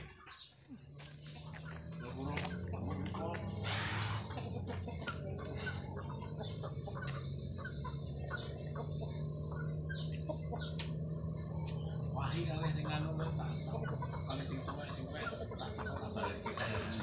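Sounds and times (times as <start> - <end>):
birds chirping: 0.0 - 17.0
chickens clucking: 0.0 - 17.0
insects droning: 0.0 - 17.0
sharp clicks: 10.1 - 11.0.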